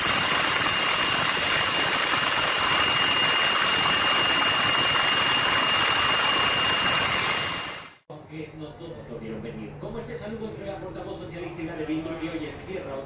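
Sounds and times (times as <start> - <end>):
helicopter rotor and engine noise: 0.0 - 8.0
high turbine whine: 0.0 - 8.0.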